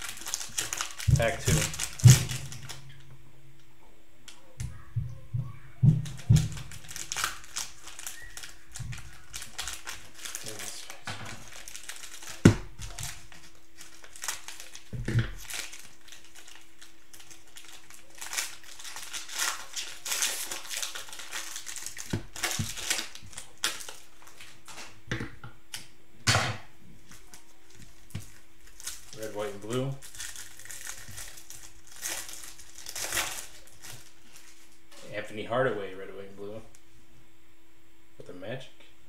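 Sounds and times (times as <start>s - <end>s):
cellophane wrapper crinkling and tearing: 0.0s - 3.0s, 6.0s - 25.0s, 27.0s - 34.8s.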